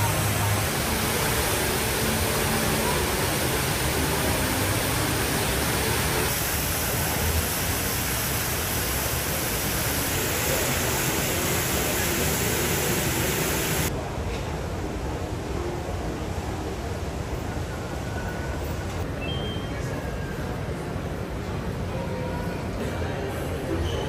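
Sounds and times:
rush of falling water: 0.0s - 13.9s.

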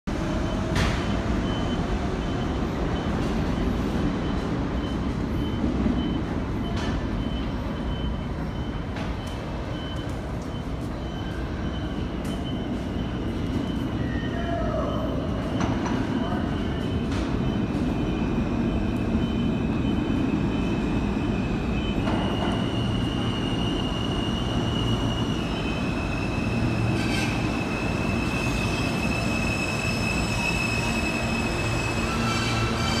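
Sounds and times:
subway train rumble: 0.0s - 33.0s
train gliding whine: 0.1s - 33.0s
faint high beep: 0.3s - 25.8s.

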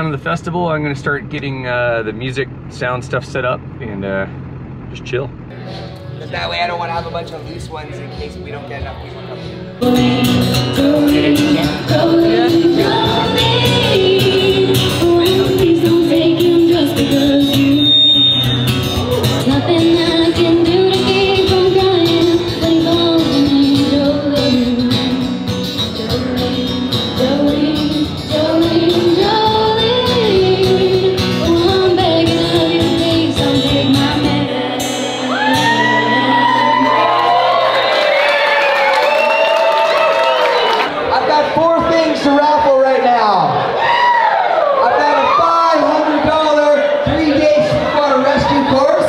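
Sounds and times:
strummed acoustic guitar: 5.5s - 36.3s
woman singing: 9.8s - 17.9s, 19.4s - 37.1s.

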